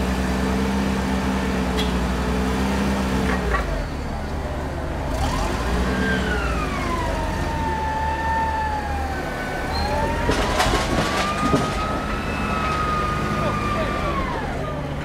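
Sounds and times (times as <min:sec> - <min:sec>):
forklift engine running: 0:00.0 - 0:15.0
slow wailing tone: 0:05.4 - 0:14.8
knocks and rattles: 0:10.0 - 0:12.8.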